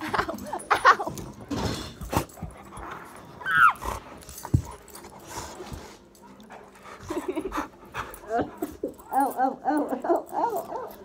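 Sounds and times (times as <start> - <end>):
dogs thumping and scuffling on carpet: 0.1 - 8.8
dog whining: 3.2 - 4.1.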